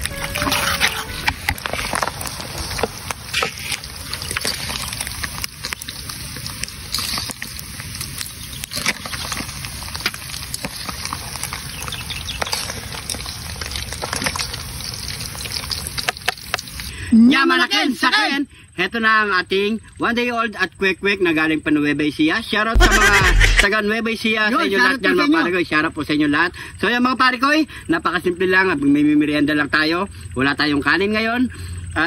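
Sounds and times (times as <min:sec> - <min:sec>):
oil sizzling and crackling: 0:00.0 - 0:16.9.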